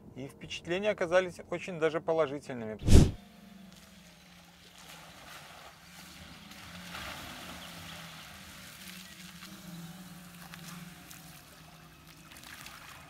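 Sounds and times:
electric car hum: 0:06.0 - 0:12.2.

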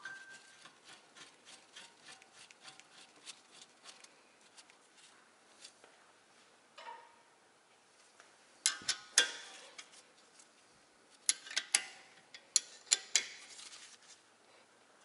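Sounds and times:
metal scrape: 0:00.0 - 0:05.1.

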